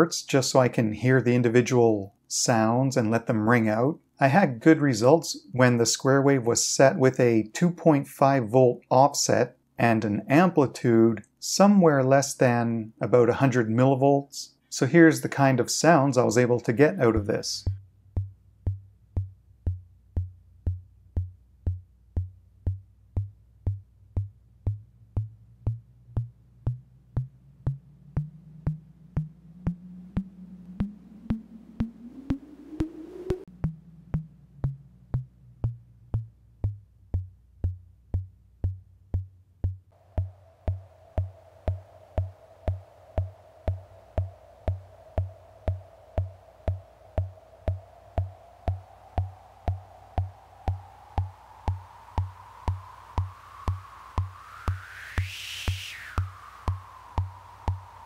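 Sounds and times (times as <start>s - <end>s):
low bass drum-like thumps: 17.0s - 58.0s
steady high ringing tone: 27.2s - 35.8s, 40.0s - 58.0s
ringing tone gliding up: 27.2s - 36.3s, 40.0s - 58.0s.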